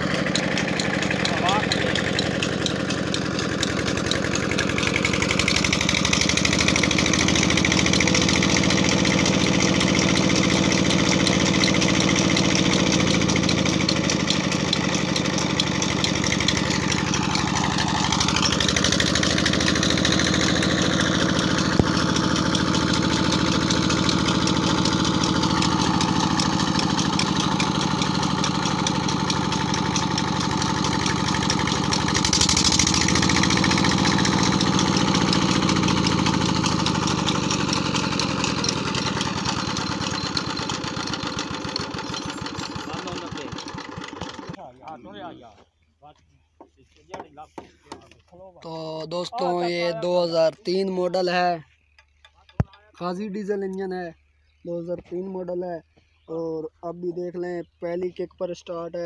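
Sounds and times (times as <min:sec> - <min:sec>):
diesel engine running steadily: 0:00.0 - 0:44.6.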